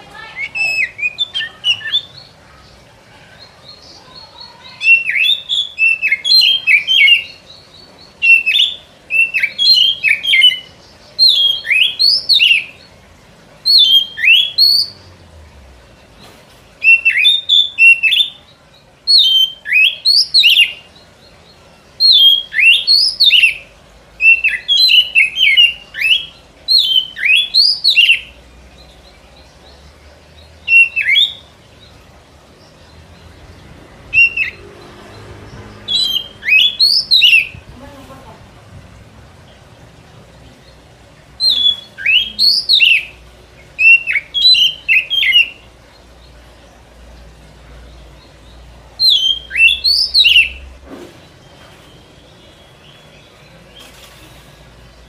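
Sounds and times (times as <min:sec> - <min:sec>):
bird singing whistled phrases: 0:00.2 - 0:02.2, 0:04.1 - 0:07.4, 0:08.2 - 0:12.8, 0:13.7 - 0:15.0, 0:16.8 - 0:18.4, 0:19.1 - 0:20.9, 0:22.0 - 0:23.6, 0:24.2 - 0:28.3, 0:30.7 - 0:31.5, 0:34.1 - 0:34.6, 0:35.9 - 0:37.6, 0:41.4 - 0:43.2, 0:43.8 - 0:45.6, 0:49.0 - 0:50.7.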